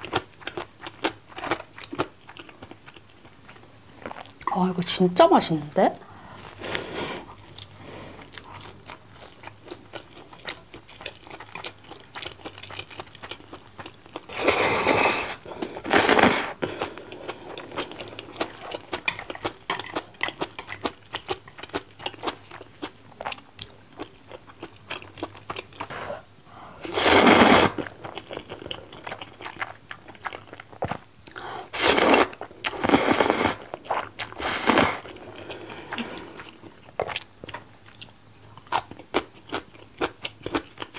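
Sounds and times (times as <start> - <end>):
chewing and crunching food: 0.0 - 4.6, 6.2 - 26.0, 27.7 - 40.9
noodle slurps: 14.3 - 16.6, 26.8 - 27.8, 31.7 - 33.6, 34.4 - 35.0.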